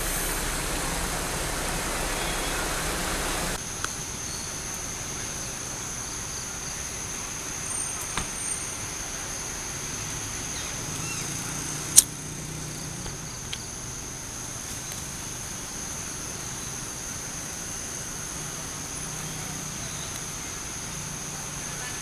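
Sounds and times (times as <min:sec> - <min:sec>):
high-pitched insect drone: 0:00.0 - 0:06.8.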